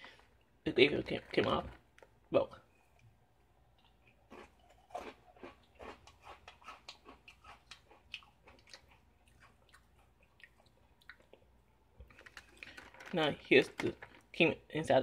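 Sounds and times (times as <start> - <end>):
cookie crunching being chewed: 3.7 - 14.4.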